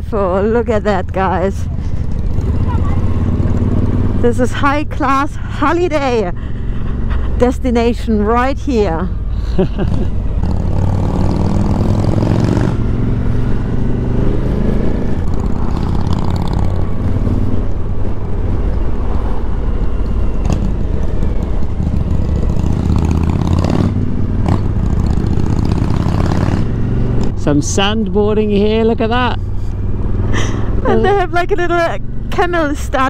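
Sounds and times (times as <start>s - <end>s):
motorcycle engine running: 0.0s - 18.5s, 19.2s - 33.0s.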